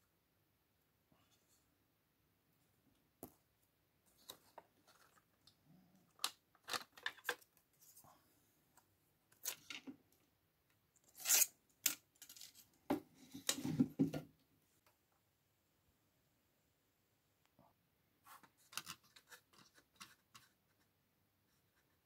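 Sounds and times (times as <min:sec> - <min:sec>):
plastic parts clicking and scraping: 0:04.1 - 0:08.0, 0:09.3 - 0:10.0, 0:11.1 - 0:13.8, 0:18.5 - 0:20.8.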